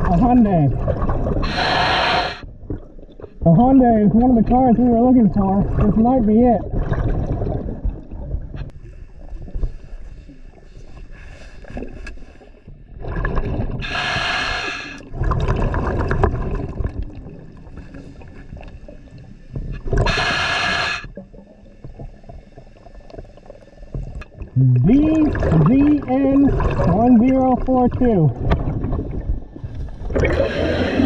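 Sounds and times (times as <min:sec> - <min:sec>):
low gurgling rumble: 0:00.0 - 0:14.1, 0:15.0 - 0:20.3, 0:21.0 - 0:31.0
hissing bursts of exhaled bubbles: 0:01.3 - 0:02.5, 0:13.4 - 0:16.1, 0:19.9 - 0:21.2, 0:30.0 - 0:31.0.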